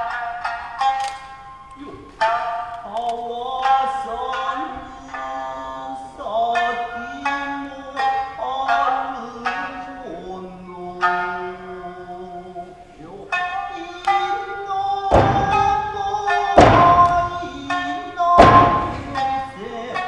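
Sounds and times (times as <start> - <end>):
shamisen music: 0.0 - 20.0
heavy thuds: 15.0 - 19.6.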